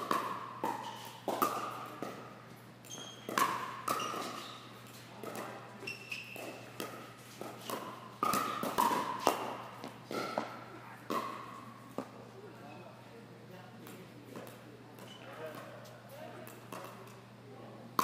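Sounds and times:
paddles striking ball: 0:00.0 - 0:02.3, 0:03.3 - 0:04.4, 0:06.4 - 0:12.2.

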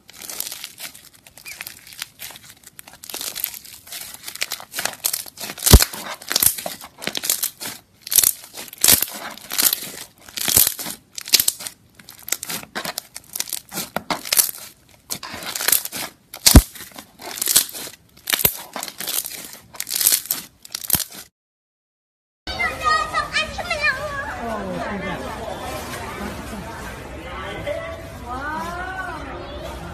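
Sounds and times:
slime squishing: 0:00.0 - 0:21.3.

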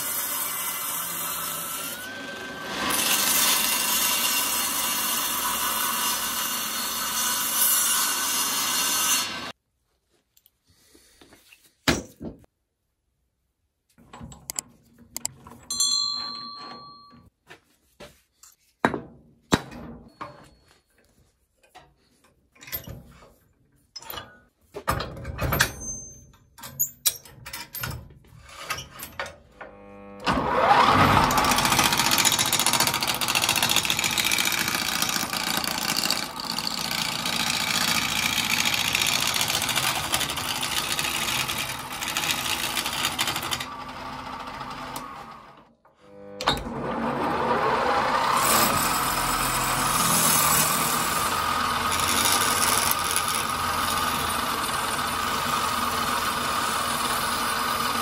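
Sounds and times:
table saw cutting wood: 0:00.0 - 0:09.6, 0:29.6 - 0:58.0.

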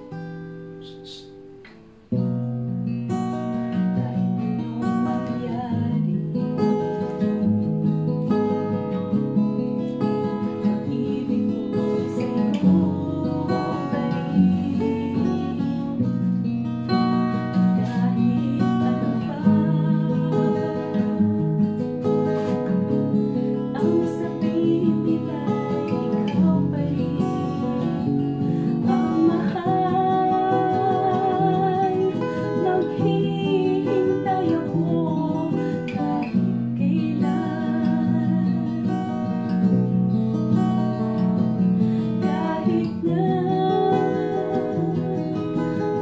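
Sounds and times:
acoustic guitar strumming: 0:00.0 - 0:46.0.

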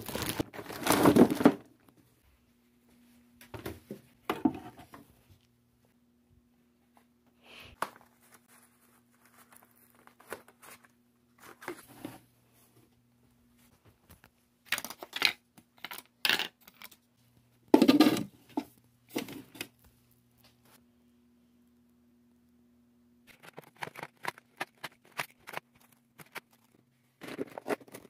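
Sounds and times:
packaging rustling and crinkling: 0:00.0 - 0:01.6, 0:07.8 - 0:11.8, 0:23.3 - 0:28.0.

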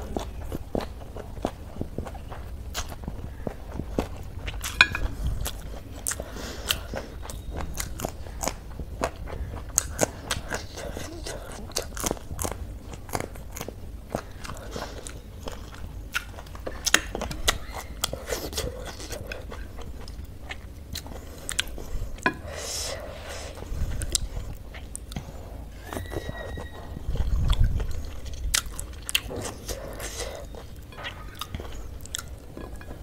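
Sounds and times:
close chewing and crunching: 0:00.0 - 0:33.0.

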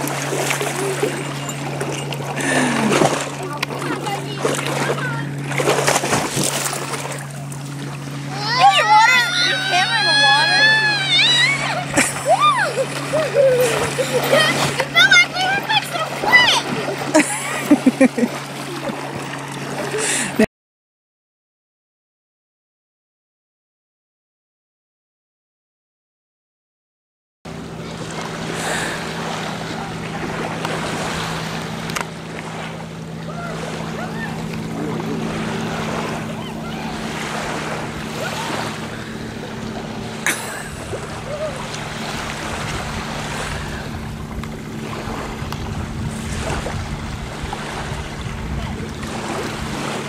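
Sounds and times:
steady low hum: 0:00.0 - 0:20.4, 0:27.5 - 0:50.0
lapping water: 0:00.0 - 0:20.5, 0:27.7 - 0:50.0
wind on microphone: 0:40.8 - 0:50.0.

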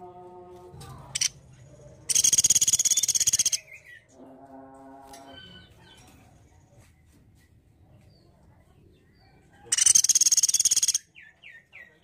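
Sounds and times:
woodpecker rattling trill: 0:01.2 - 0:01.4, 0:02.1 - 0:04.0, 0:09.7 - 0:11.0.

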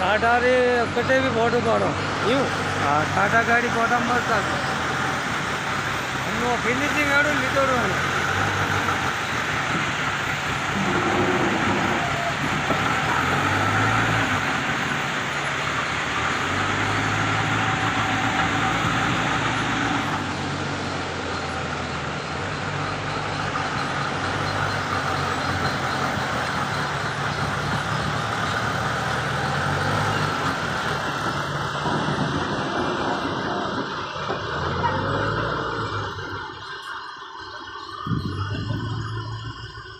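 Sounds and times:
diesel engine revving: 0:00.0 - 0:39.9.

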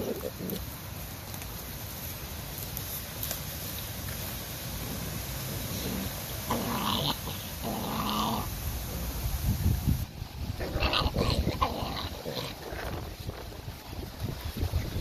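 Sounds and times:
puppies growling: 0:00.0 - 0:00.7, 0:04.7 - 0:09.2, 0:10.6 - 0:13.5.

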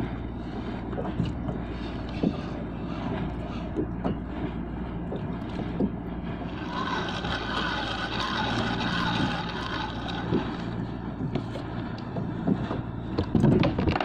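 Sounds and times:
steady low hum: 0:00.0 - 0:14.0
fishing reel whirring: 0:06.4 - 0:11.1.

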